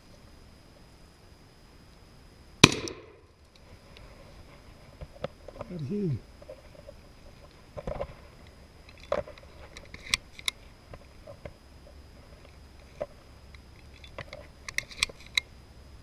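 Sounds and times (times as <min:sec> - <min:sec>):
sharp snaps and clicks: 0:08.4 - 0:10.6, 0:13.0 - 0:15.5.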